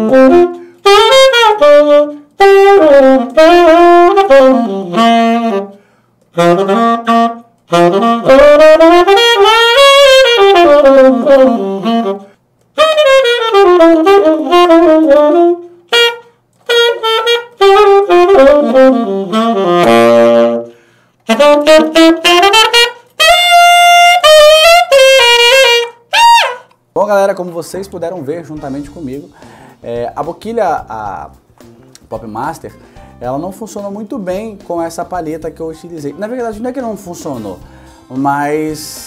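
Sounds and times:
tenor saxophone solo: 0.0s - 26.8s.

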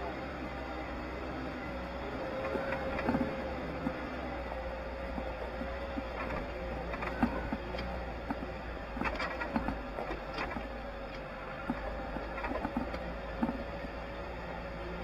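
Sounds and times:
vehicle engine hum: 0.0s - 15.0s
knocks and rattles on gravel: 5.1s - 14.0s.

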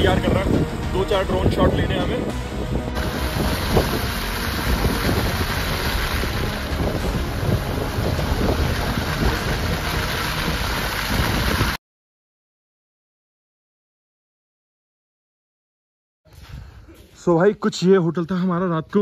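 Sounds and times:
wind buffeting microphone: 0.0s - 11.8s
tyre and road noise on snow: 2.4s - 11.8s.

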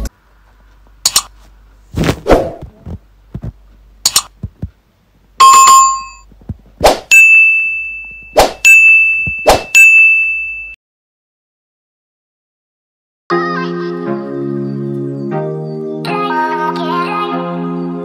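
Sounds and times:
quick clicks and swishes: 4.0s - 4.4s
ringing bell ding: 5.4s - 6.2s, 7.1s - 10.8s.

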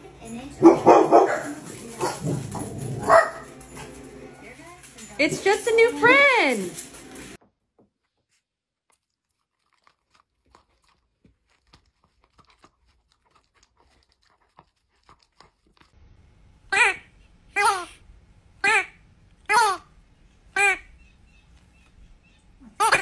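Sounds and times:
dog nibbling and crunching: 1.3s - 5.2s, 8.0s - 16.0s.

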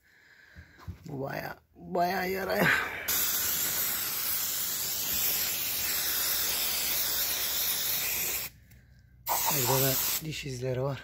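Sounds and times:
aerosol spray hissing: 3.1s - 8.6s, 9.3s - 10.3s.

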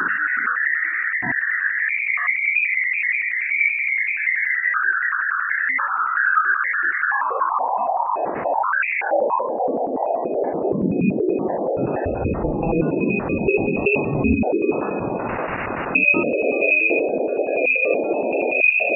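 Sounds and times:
electronic warbling whistle: 12.0s - 18.9s.

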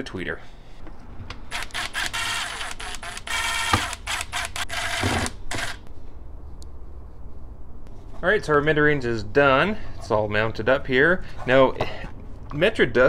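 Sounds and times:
cordless drill whirring: 1.5s - 5.8s.

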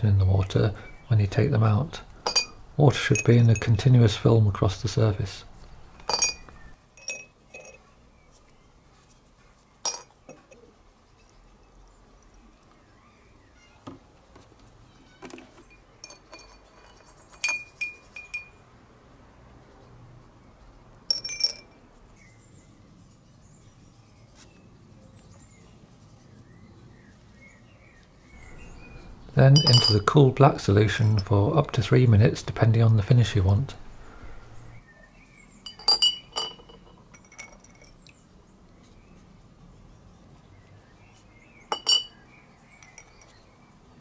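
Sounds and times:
glass ringing: 2.2s - 3.8s, 6.0s - 7.8s, 9.9s - 10.6s, 15.6s - 18.6s, 21.1s - 21.8s, 29.5s - 30.2s, 35.6s - 38.0s, 41.7s - 42.2s, 42.8s - 43.4s
metal bolts clinking against glass jars: 2.2s - 3.9s, 6.0s - 7.9s, 9.8s - 12.4s, 15.4s - 18.6s, 21.1s - 21.8s, 29.5s - 30.2s, 30.9s - 31.4s, 35.6s - 38.2s, 41.7s - 43.4s.

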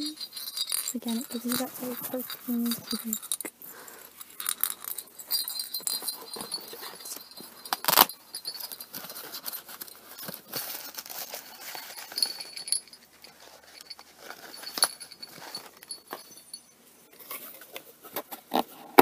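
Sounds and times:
short metallic jingles: 0.0s - 3.6s
rustling of small items: 0.0s - 19.0s.

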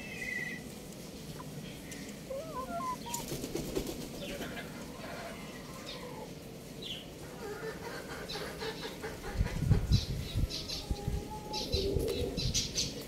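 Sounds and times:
birds pecking on concrete: 0.6s - 6.9s
chicks chirping: 1.4s - 3.5s.

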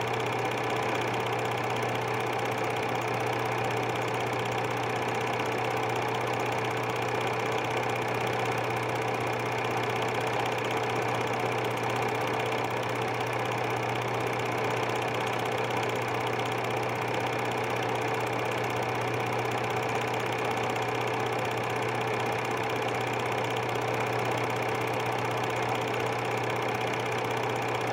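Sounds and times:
film projector whirring: 0.0s - 27.9s.

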